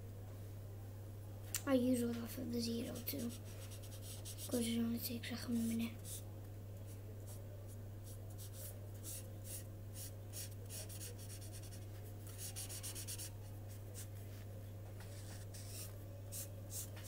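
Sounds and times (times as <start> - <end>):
marker scratching on paper: 2.8 - 4.7, 5.5 - 6.2, 8.0 - 14.1, 15.0 - 17.0.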